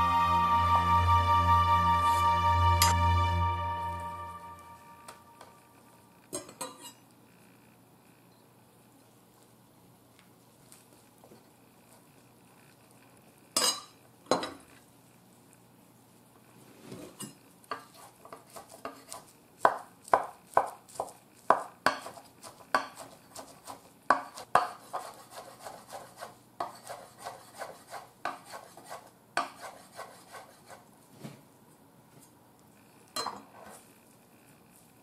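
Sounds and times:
knife chopping on wooden board: 17.8 - 29.8.

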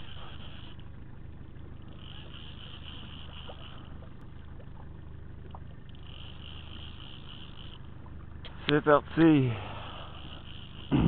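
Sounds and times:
boat motor humming: 0.0 - 11.0
high whine: 0.0 - 11.0.

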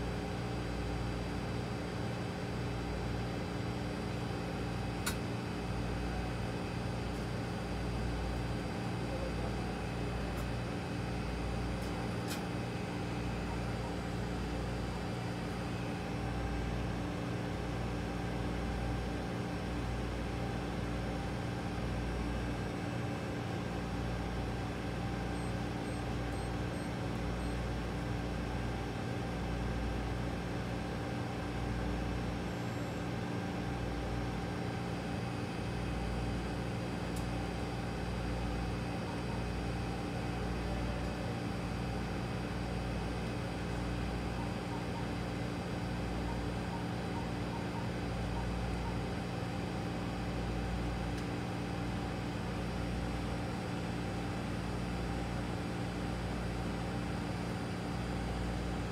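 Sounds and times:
machine hum with held tones: 0.0 - 58.9
machine hum: 23.1 - 29.0.

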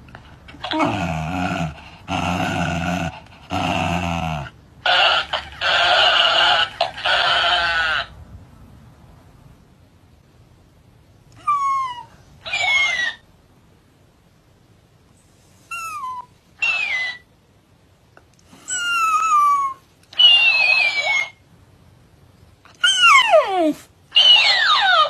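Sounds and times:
dog yelping: 11.4 - 13.2, 15.7 - 17.3, 18.7 - 21.4, 22.8 - 25.0.

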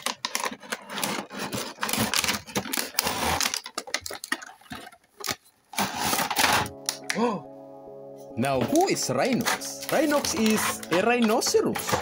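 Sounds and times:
plastic trays clicking: 0.0 - 5.4, 9.4 - 12.0
plastic packaging crinkling: 0.0 - 7.1, 9.3 - 12.0.

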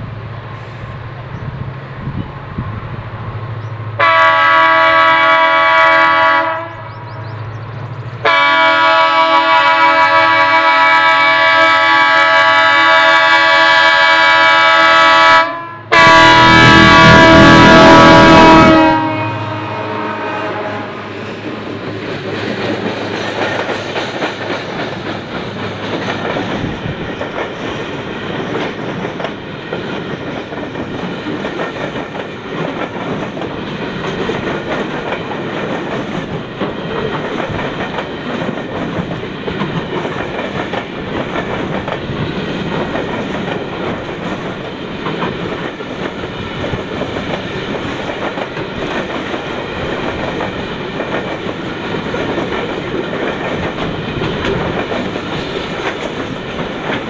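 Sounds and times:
freight train wheels clattering: 16.8 - 57.0.

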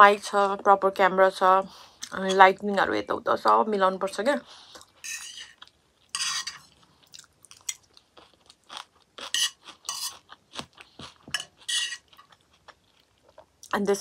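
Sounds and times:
crunchy chewing: 4.8 - 13.8
fork scraping ceramic plate: 5.0 - 6.8, 9.3 - 10.3, 11.3 - 12.2.

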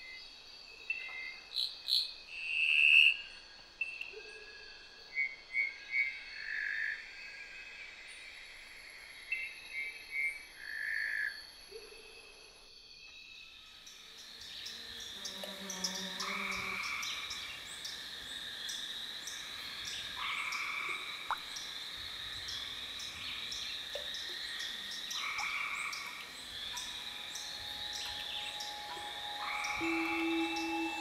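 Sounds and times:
high-pitched chorus of ticks and trills: 12.7 - 31.0
frog croaking call: 14.8 - 18.0, 24.0 - 31.0.

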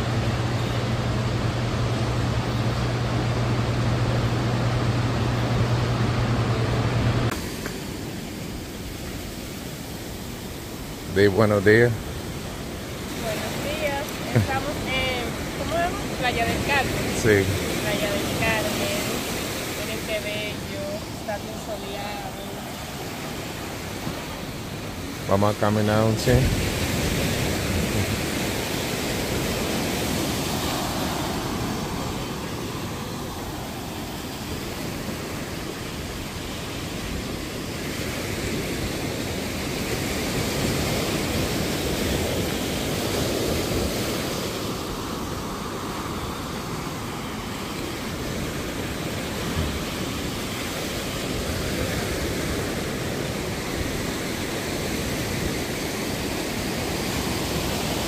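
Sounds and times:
surf washing onto beach: 0.0 - 58.0.

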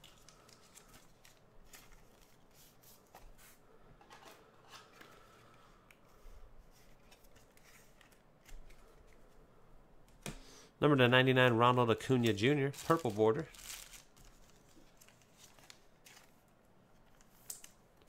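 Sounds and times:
trading cards rustling and clicking: 12.1 - 16.4.

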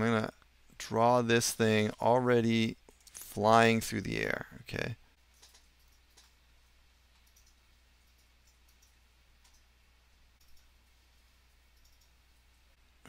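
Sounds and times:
faint low hum: 0.0 - 13.0
faint computer clicks: 5.3 - 6.4, 7.1 - 9.7, 10.4 - 10.7, 11.7 - 12.2.

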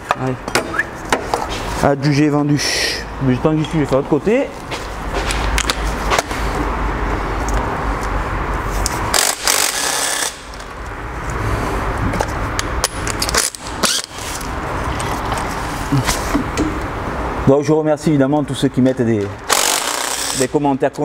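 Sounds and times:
impact wrench hammering: 9.1 - 10.5, 19.5 - 20.5.

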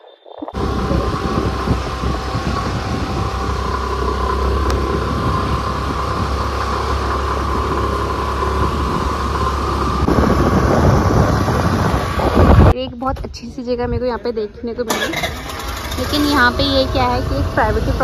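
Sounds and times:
car driving interior rumble: 0.5 - 12.8.

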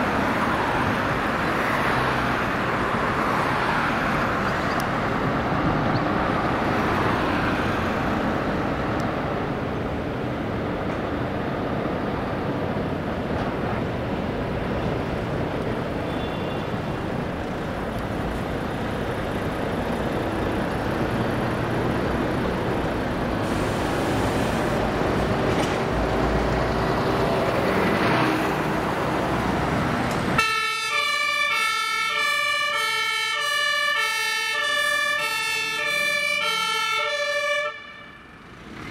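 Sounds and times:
diesel truck engine: 0.0 - 38.9
two-tone siren: 30.4 - 38.4.

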